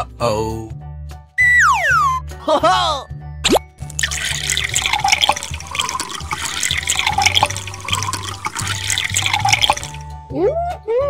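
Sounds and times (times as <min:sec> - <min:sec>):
water pouring into a clay bowl: 0:03.5 - 0:10.1.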